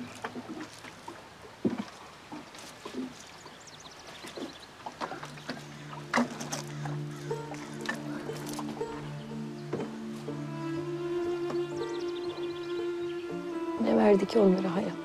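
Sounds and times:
soft music with low notes: 0:05.0 - 0:15.0.

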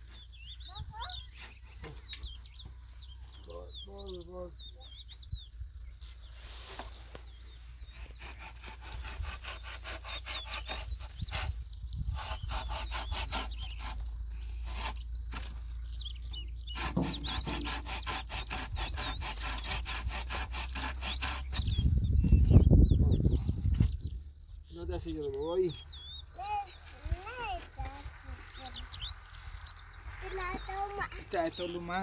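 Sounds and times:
small birds chirping: 0:00.0 - 0:32.0
hand saw cutting wood: 0:08.0 - 0:15.6, 0:16.7 - 0:21.7.

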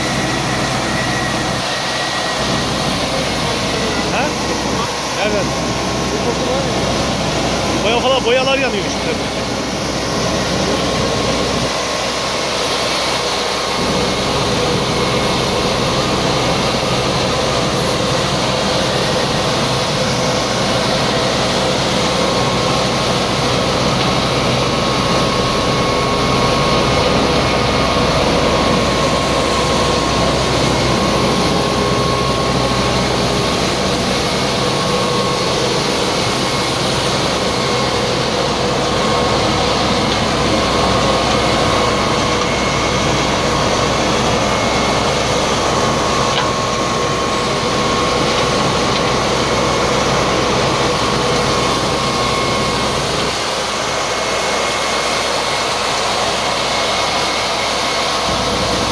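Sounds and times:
street sweeper suction fan drone: 0:00.0 - 0:58.9.

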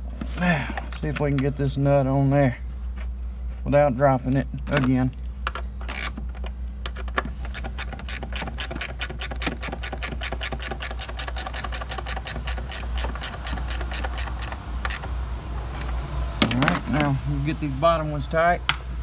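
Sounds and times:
ratchet wrench clicking: 0:07.4 - 0:15.2.

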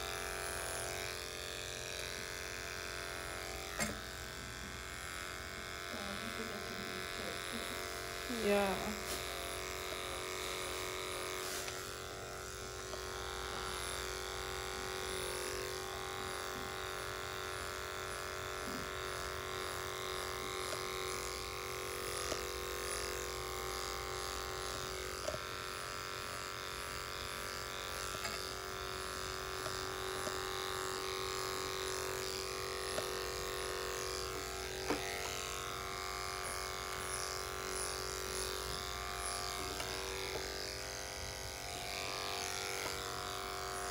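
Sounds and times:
electric clippers buzzing: 0:00.0 - 0:43.9.

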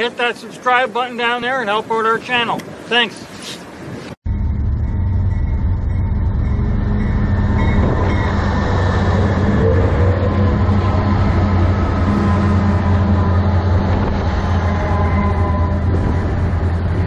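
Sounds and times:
diesel locomotive engine drone: 0:04.2 - 0:17.0
wheels rumbling on rails: 0:04.3 - 0:17.0.

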